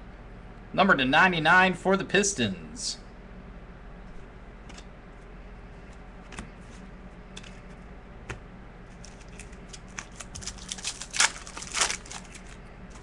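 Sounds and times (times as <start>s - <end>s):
card wrappers crinkling: 8.9s - 13.0s.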